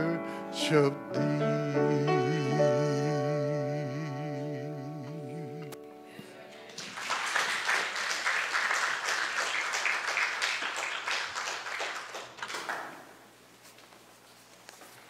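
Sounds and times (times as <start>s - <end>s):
congregation applauding: 6.7s - 13.3s.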